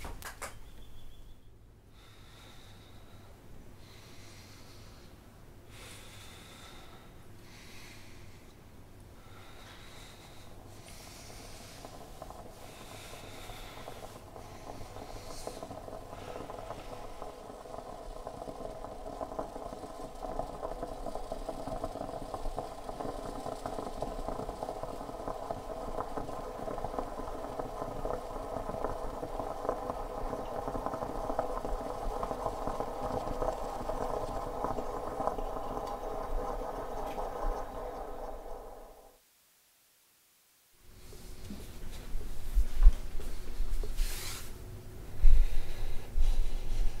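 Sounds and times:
mechanical drone with fast rattling: 10.2 - 39.2.

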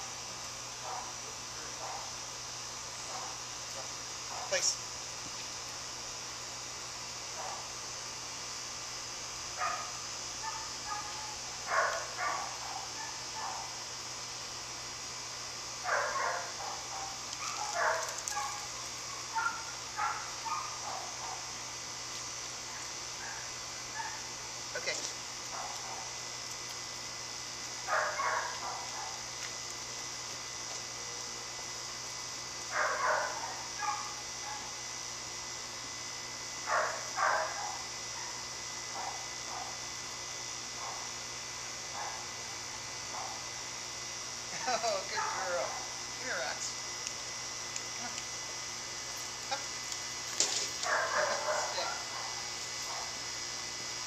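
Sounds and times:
high insect drone: 0.0 - 54.0
dog barking: 0.8 - 1.2, 1.8 - 2.2, 3.1 - 3.4, 4.3 - 4.6, 7.4 - 7.7, 9.6 - 13.8, 15.9 - 21.5, 22.7 - 24.3, 25.5 - 26.2, 27.9 - 29.2, 32.7 - 34.8, 36.7 - 39.8, 40.8 - 41.1, 41.9 - 42.4, 43.1 - 43.5, 45.1 - 45.9, 50.8 - 53.2.

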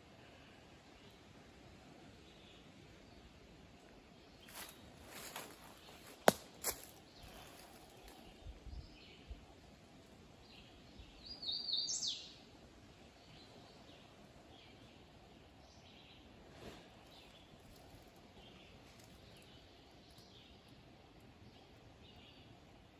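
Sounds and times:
faint outdoor background noise: 0.0 - 22.9
bird chirping: 10.4 - 12.4.

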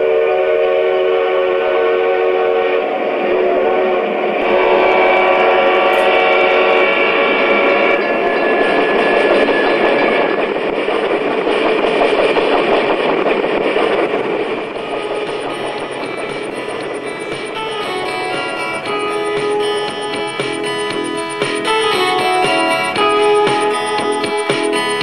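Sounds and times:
model locomotive horn chords: 0.0 - 9.2, 14.8 - 25.0
model train rumbling past: 0.0 - 25.0.

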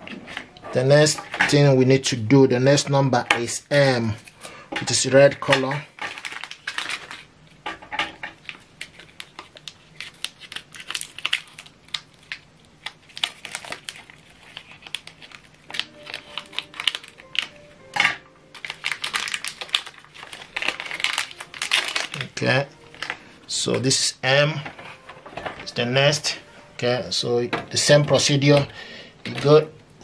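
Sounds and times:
plastic bag crinkling: 5.4 - 7.4, 8.3 - 23.8.

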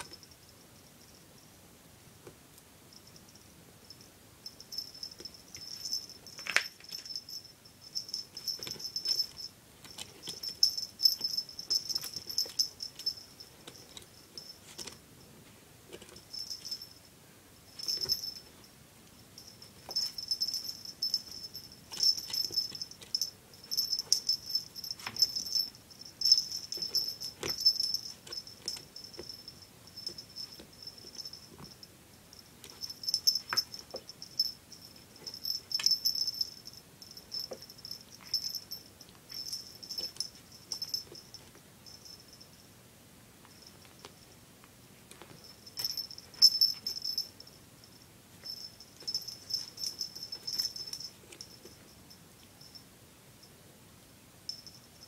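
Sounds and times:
small collar bell jingling: 0.0 - 1.5, 2.9 - 15.4, 16.0 - 42.7, 43.4 - 44.4, 45.2 - 53.5, 54.5 - 55.0
claws clicking on tile floor: 5.1 - 7.4.

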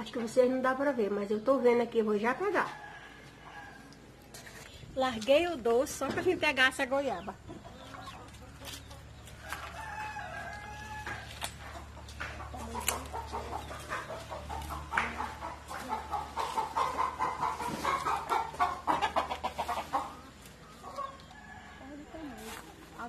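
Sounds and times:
chickens clucking: 0.0 - 23.0
rooster crowing: 2.6 - 4.0, 9.4 - 11.4
leaves rustling and twigs snapping: 11.1 - 11.7, 12.6 - 13.2.

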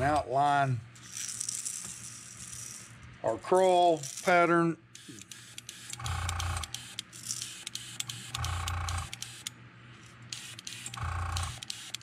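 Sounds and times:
airbrush compressor humming: 5.0 - 9.5, 10.3 - 12.0.

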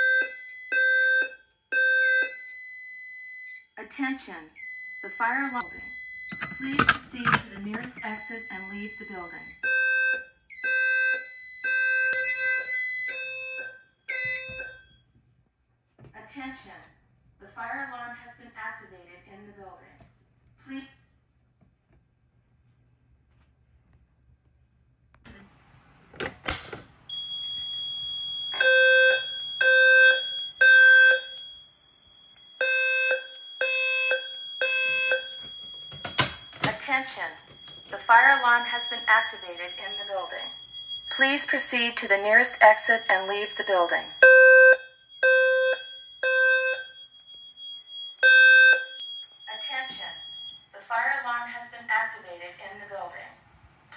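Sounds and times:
fire alarm electronic tone blasts: 0.0 - 15.0, 27.1 - 50.9.

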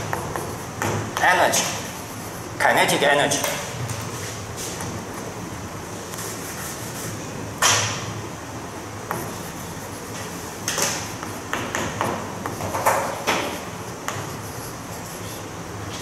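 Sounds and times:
chalk tapping and scratching: 0.0 - 2.5, 6.1 - 7.2, 9.1 - 16.0.

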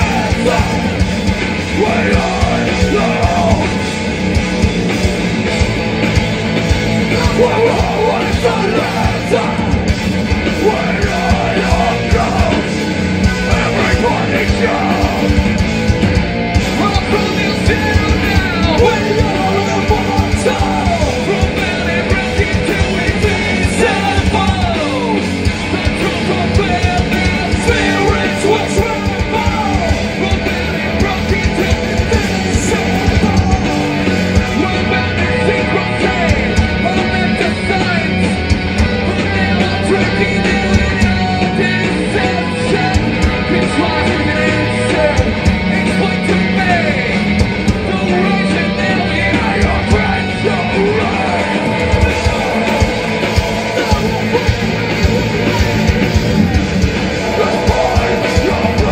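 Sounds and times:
vocalist yelling and singing: 0.0 - 4.6, 6.9 - 15.9, 16.6 - 58.9
rock band playing live: 0.0 - 58.9.

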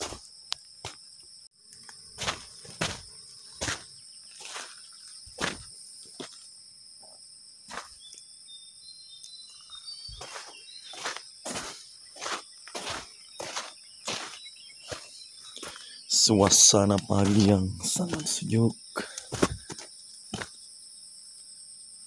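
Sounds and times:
footsteps on dirt path: 0.0 - 1.1, 1.7 - 6.6, 7.7 - 8.2, 9.5 - 20.6
insects droning: 0.0 - 22.0
bird chirps: 7.9 - 19.0.

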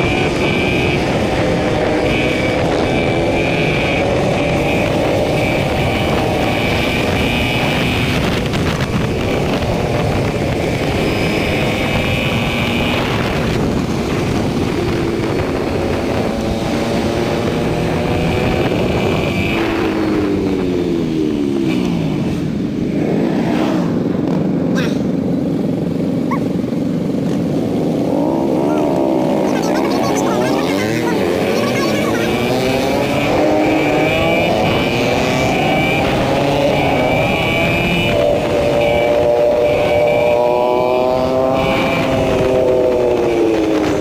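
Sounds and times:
wind noise: 0.0 - 24.6, 25.6 - 44.0.

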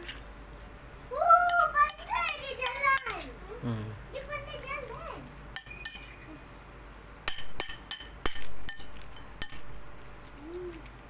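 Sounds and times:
utensil clinking against a bowl: 1.5 - 3.2, 5.6 - 6.1, 7.3 - 9.7.

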